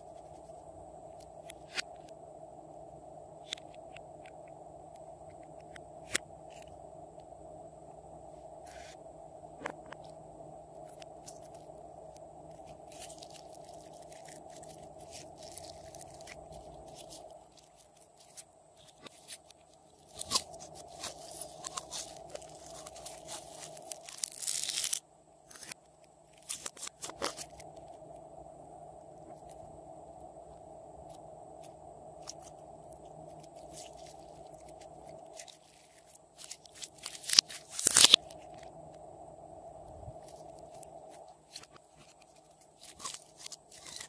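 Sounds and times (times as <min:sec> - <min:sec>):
faint steady hum: 0:00.0 - 0:44.0
slime crackling and popping: 0:12.6 - 0:25.7, 0:33.5 - 0:38.3.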